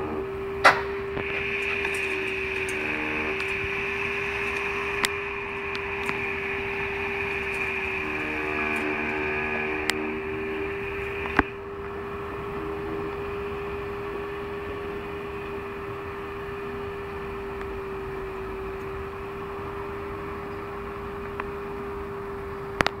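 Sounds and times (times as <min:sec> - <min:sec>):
background hiss: 0:00.0 - 0:11.7
electric motor hum: 0:00.0 - 0:23.0.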